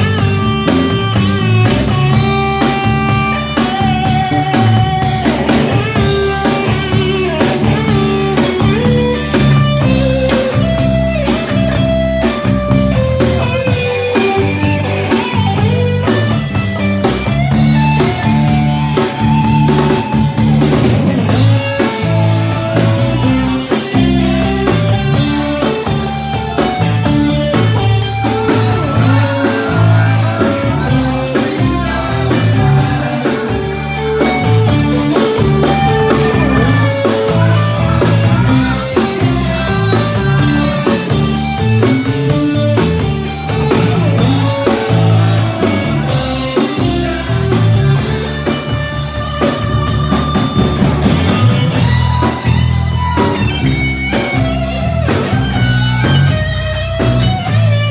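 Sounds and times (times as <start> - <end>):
live rock band playing: 0.0 - 57.9
man singing into a microphone: 28.1 - 34.4, 35.9 - 41.1, 43.6 - 47.9.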